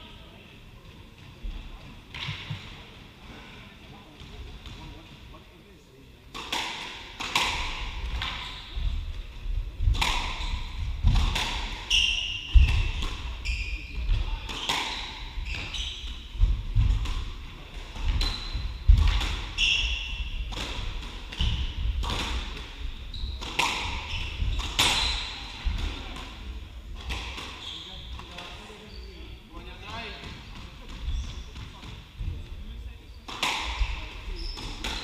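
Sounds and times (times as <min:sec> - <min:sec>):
shoes squeaking on wooden floor: 0:11.8 - 0:16.9.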